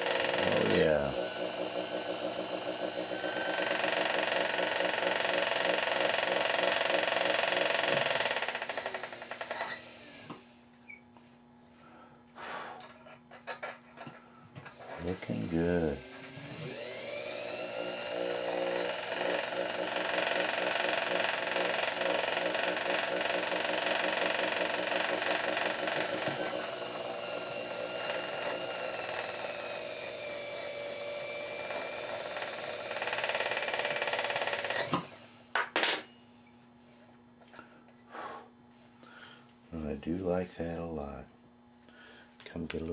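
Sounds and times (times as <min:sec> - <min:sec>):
file on metal: 0:00.0 - 0:03.9, 0:17.8 - 0:29.8
small lathe motor running: 0:00.0 - 0:10.4, 0:14.8 - 0:35.4.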